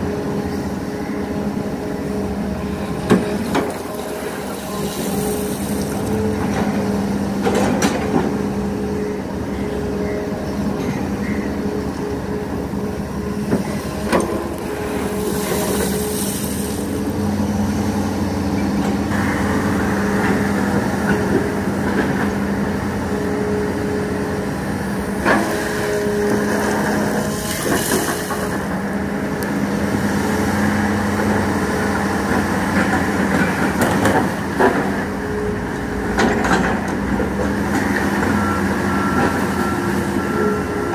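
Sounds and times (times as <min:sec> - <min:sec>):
excavator diesel engine running: 0:00.0 - 0:40.9.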